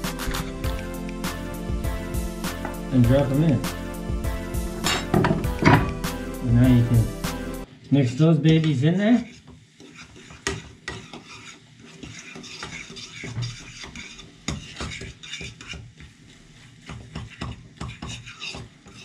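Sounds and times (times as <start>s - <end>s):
fork scraping a frying pan: 0.1s - 0.6s, 8.0s - 19.0s.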